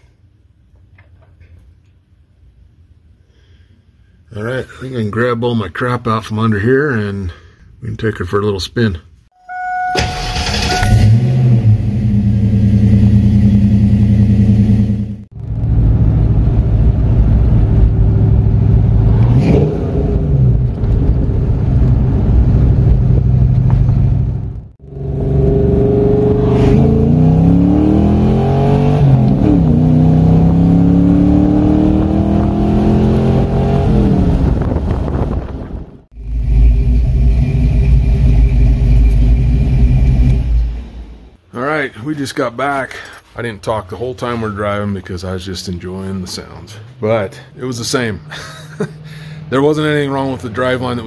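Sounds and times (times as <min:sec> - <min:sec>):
car engine and exhaust accelerating: 0:10.2 - 0:41.2.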